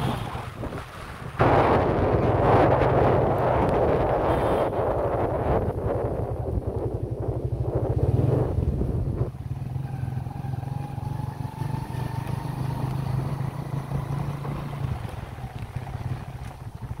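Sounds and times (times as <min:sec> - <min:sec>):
motorcycle engine running: 0:05.9 - 0:17.0.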